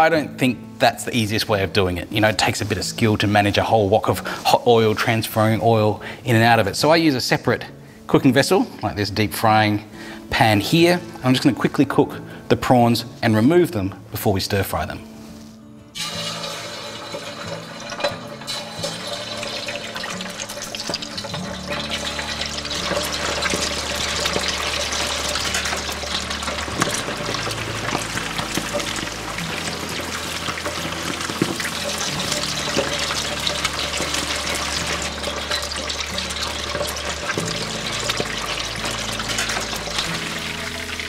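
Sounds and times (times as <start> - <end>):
prawns sizzling in hot oil: 16.0 - 41.0.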